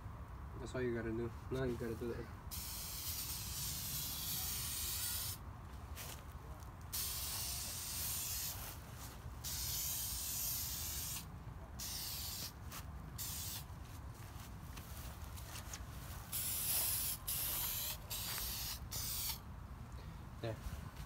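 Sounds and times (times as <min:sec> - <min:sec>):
aerosol spray can hissing: 0:02.5 - 0:05.4, 0:07.0 - 0:08.6, 0:09.4 - 0:12.6, 0:13.2 - 0:13.7, 0:16.3 - 0:19.4.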